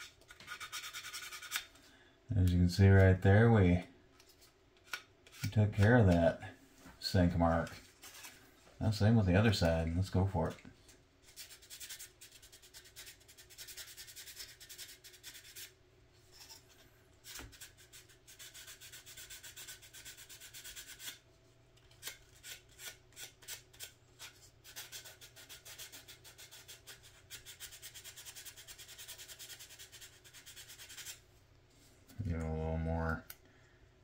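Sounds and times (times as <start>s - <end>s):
sandpaper rubbing on plastic: 0.0s - 1.6s, 11.3s - 15.7s, 17.3s - 21.2s, 22.4s - 31.2s.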